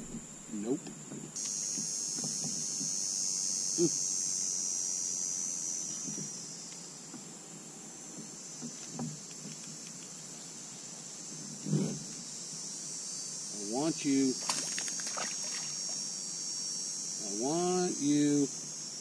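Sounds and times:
insect chorus buzzing: 0.0s - 19.0s.

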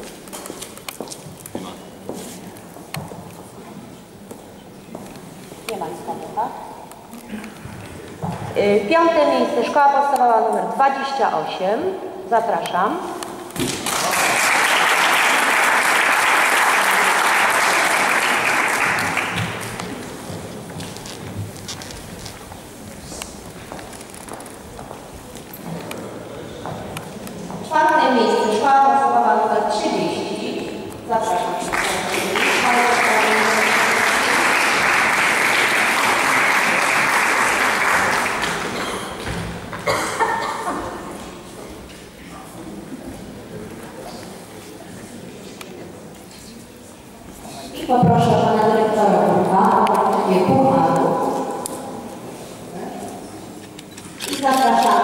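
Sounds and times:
audience applauding: 13.6s - 20.1s, 31.6s - 39.2s.

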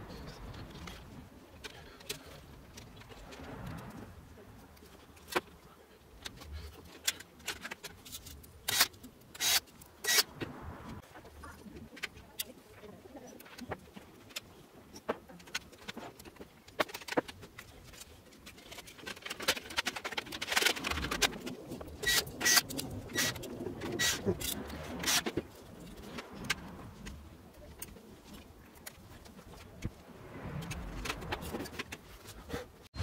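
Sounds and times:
plastic and metal parts clicking: 13.4s - 27.2s.

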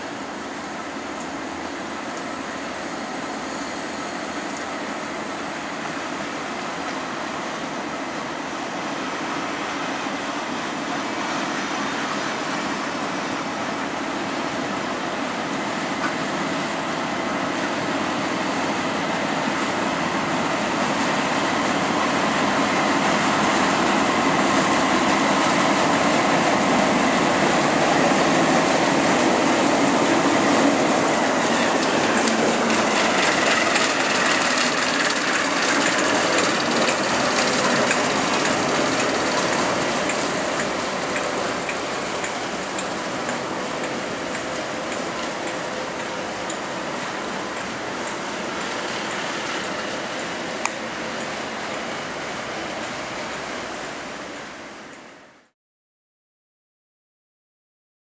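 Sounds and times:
diesel locomotive engine: 0.0s - 55.5s
wagon wheels rumbling on rails: 13.6s - 54.9s.

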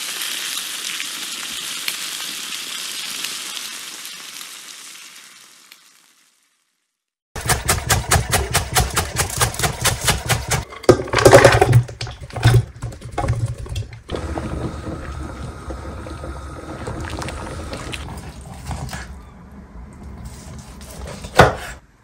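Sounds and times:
knife chopping on wooden board: 7.4s - 10.6s, 20.8s - 21.8s
jumble of kitchen sounds: 7.4s - 22.0s
wooden spoon stirring pot: 10.4s - 19.3s.

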